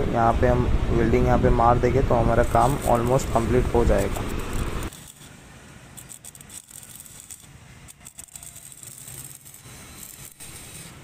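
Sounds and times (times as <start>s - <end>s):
welding arc crackling: 2.4s - 11.0s.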